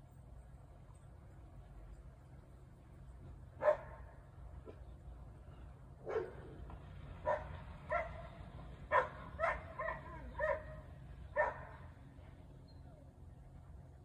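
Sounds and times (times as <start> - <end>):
dog barking: 3.6 - 4.8, 6.0 - 6.5, 7.2 - 10.8, 11.4 - 11.8.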